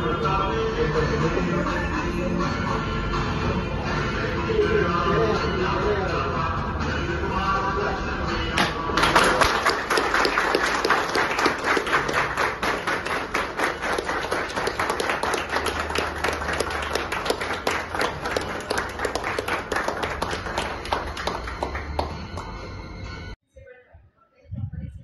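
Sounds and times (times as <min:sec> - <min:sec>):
group of people clapping: 0:08.6 - 0:22.8.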